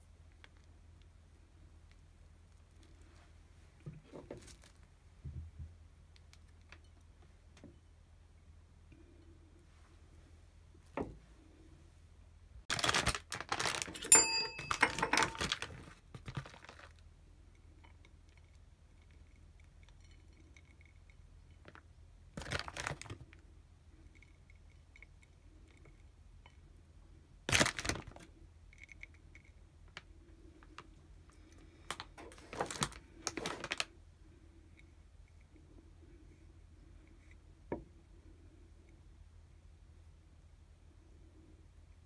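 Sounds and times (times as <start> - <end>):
ringing clink: 14.0 - 15.5.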